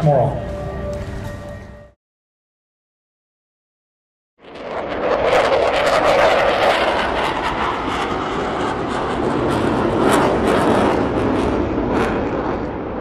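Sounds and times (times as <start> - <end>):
jet engine noise: 4.4 - 13.0.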